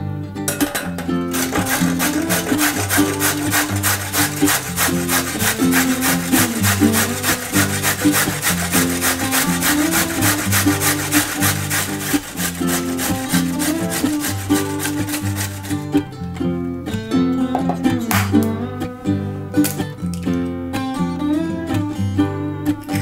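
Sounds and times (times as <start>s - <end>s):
background music: 0.0s - 23.0s
carrot grated on metal grater: 0.6s - 16.0s.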